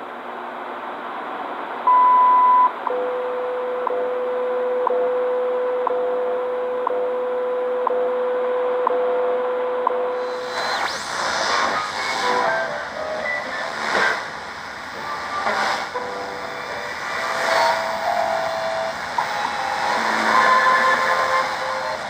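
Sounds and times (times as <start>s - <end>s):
long high beep: 1.9s - 6.2s
radio static: 10.1s - 22.0s.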